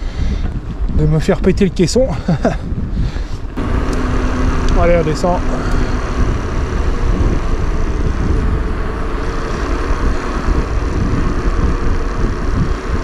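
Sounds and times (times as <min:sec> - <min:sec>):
wind on microphone: 0:00.0 - 0:13.0
tyres rolling on tarmac: 0:03.6 - 0:13.0.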